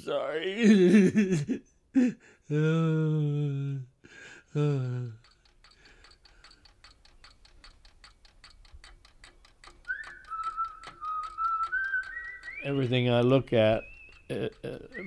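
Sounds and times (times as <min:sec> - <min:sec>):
man's voice: 0:00.0 - 0:01.2
mechanical clock ticking: 0:04.2 - 0:15.0
whistled tone: 0:09.8 - 0:14.3.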